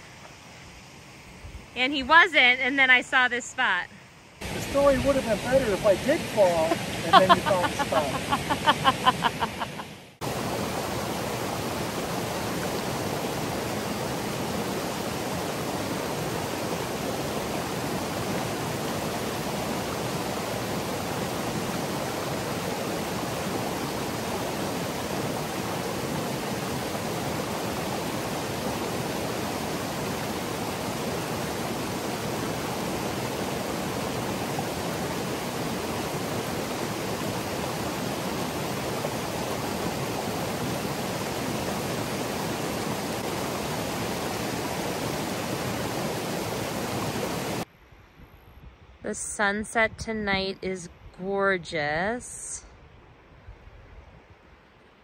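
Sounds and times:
creek rushing over rocks: 0:04.4 - 0:47.7.

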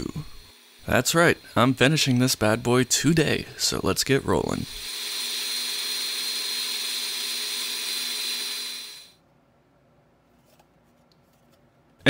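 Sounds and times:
electric drill whirring: 0:00.0 - 0:01.7, 0:04.6 - 0:09.2.

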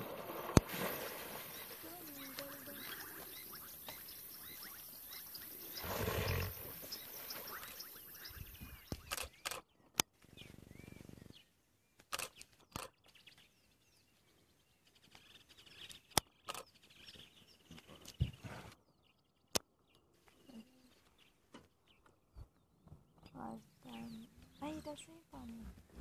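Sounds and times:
birds chirping softly: 0:00.0 - 0:26.0
sharp clicks: 0:08.9 - 0:10.1, 0:12.0 - 0:13.0, 0:16.1 - 0:16.7.

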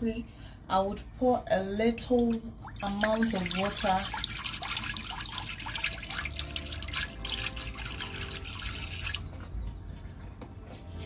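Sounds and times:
water pouring into metal pot: 0:02.2 - 0:09.3.

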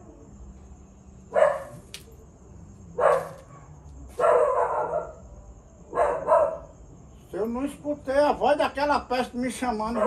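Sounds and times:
dog barking: 0:01.3 - 0:01.8, 0:03.0 - 0:05.2, 0:05.9 - 0:06.8, 0:09.8 - 0:10.0.

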